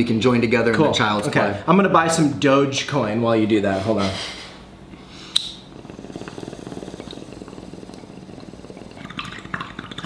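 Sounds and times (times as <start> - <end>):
lighter clicking: 5.3 - 5.6
water bubbling in a bong: 5.5 - 10.0.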